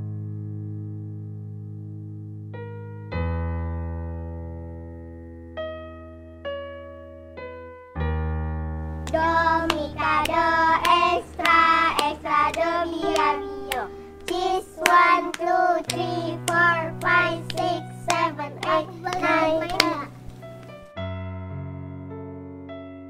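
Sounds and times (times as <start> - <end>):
low keyboard chord: 0.0 - 23.0
electric piano notes: 5.6 - 22.9
sharp claps: 9.0 - 20.7
person singing: 9.1 - 20.1.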